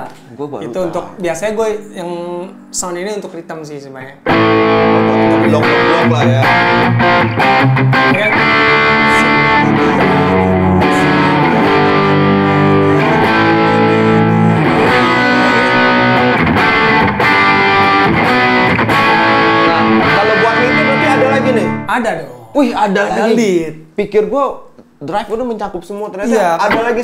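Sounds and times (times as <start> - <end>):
overdriven electric guitar chords: 4.2 - 21.9.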